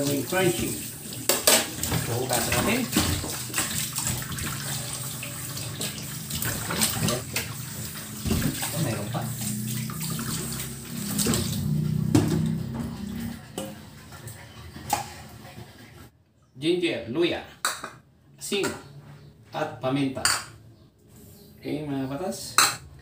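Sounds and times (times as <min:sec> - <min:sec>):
water splashing over meat: 0:00.0 - 0:12.7
tap water running into sink: 0:00.0 - 0:16.1.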